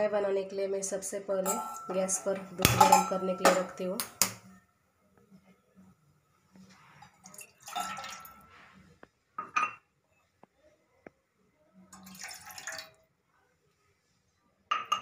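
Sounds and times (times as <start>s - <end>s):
milk pouring into a saucepan: 7.0s - 8.5s, 11.9s - 13.0s.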